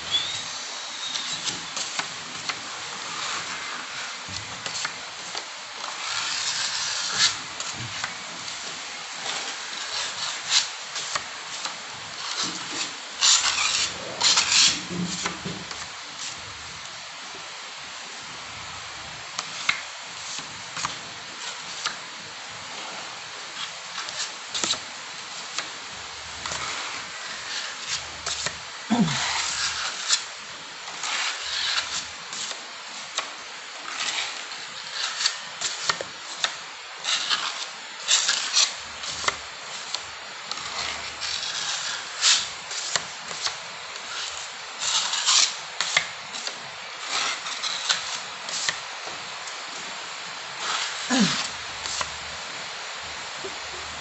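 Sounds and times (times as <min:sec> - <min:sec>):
putty knife scraping: 0:12.2 - 0:15.5, 0:33.9 - 0:48.8.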